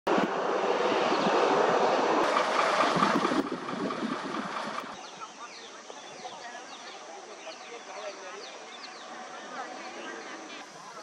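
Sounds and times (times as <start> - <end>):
bus engine rumbling: 2.2 - 5.0
faint birdsong: 4.6 - 11.0.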